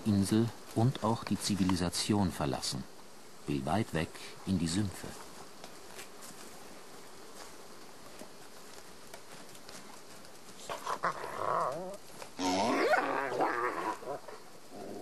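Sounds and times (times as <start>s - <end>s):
wolf whining and yelping: 10.7s - 14.4s.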